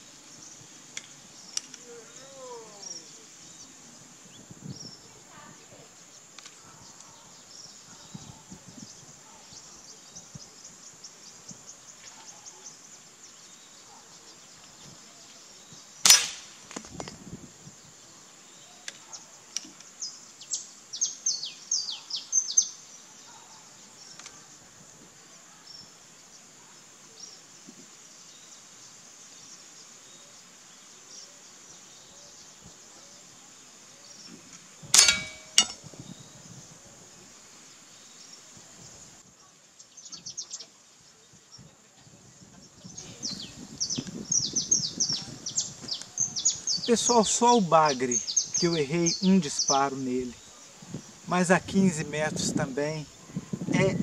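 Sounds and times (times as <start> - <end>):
bird chirping: 0.0 - 16.1, 17.9 - 24.6, 37.9 - 41.6, 42.6 - 54.0
air rifle shot crack: 16.0 - 16.6.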